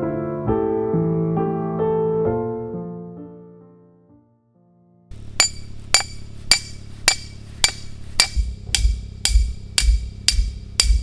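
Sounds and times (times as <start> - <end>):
hammer striking steel stake: 5.1 - 11.0.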